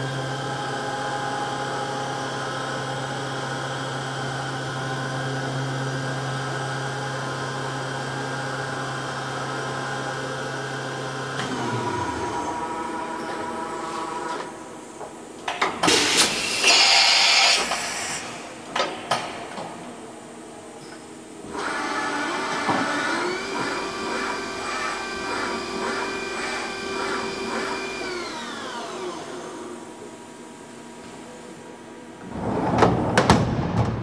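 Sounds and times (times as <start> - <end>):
motor whine: 11.2 - 14.7, 21.5 - 30.0.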